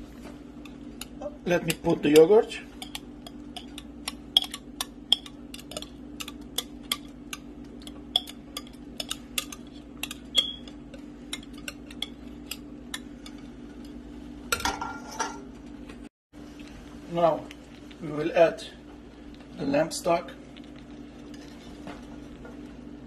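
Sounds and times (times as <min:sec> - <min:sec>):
steady low hum: 0:00.0 - 0:23.0
utensil tapping metal pot: 0:00.6 - 0:13.1.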